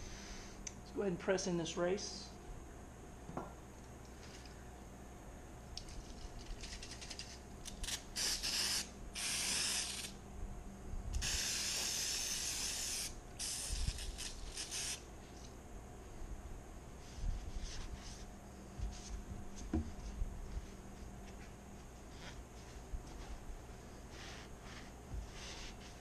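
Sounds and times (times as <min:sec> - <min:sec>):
aerosol spray can hissing: 0:08.2 - 0:10.1, 0:11.2 - 0:15.0.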